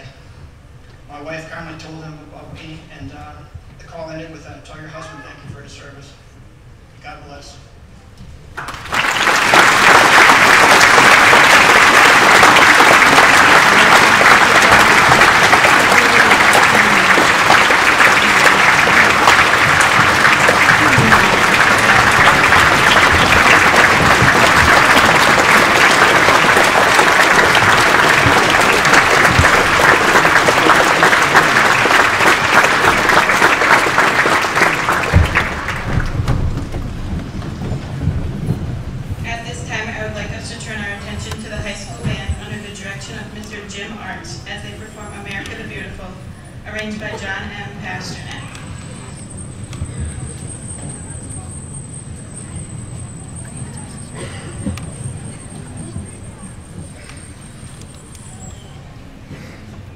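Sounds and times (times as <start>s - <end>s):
large audience applauding: 8.5s - 36.8s.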